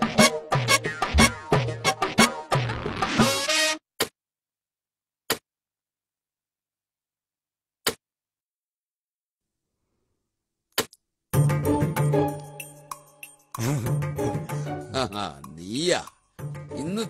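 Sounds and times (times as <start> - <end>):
music: 0.0 - 3.8, 11.3 - 17.0.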